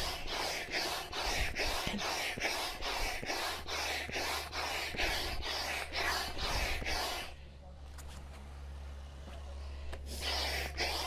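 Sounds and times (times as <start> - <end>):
hand air pump strokes: 0.0 - 7.3.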